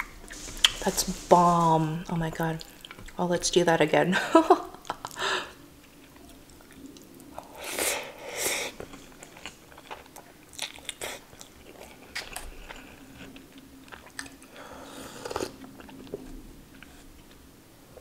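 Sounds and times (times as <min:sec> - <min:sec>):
person sipping from a cup: 0:00.0 - 0:01.3
person chewing with wet smacks: 0:02.6 - 0:03.2, 0:05.8 - 0:07.6, 0:08.7 - 0:14.5, 0:15.2 - 0:17.4.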